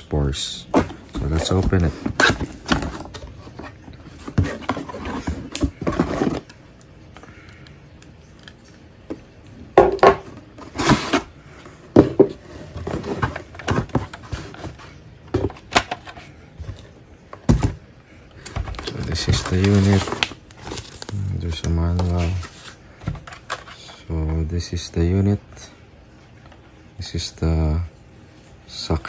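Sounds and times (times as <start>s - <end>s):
cardboard box being unpacked: 0.7s - 6.6s, 10.6s - 11.3s, 12.5s - 16.3s, 18.4s - 21.2s
contents scraping and rustling: 0.8s - 6.5s, 10.6s - 11.3s, 18.4s - 24.0s.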